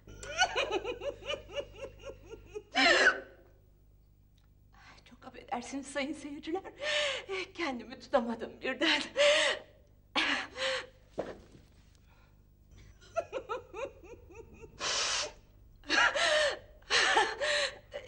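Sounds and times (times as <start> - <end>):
person sobbing: 1.3 - 3.2, 13.2 - 18.0.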